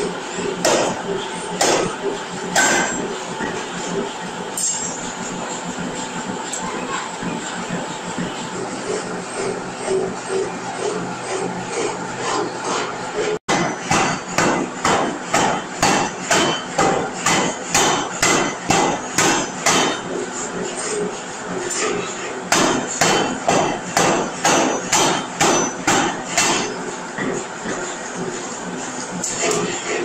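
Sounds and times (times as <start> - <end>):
power hammer striking steel: 0.0 - 3.6, 13.5 - 20.2, 21.7 - 27.4.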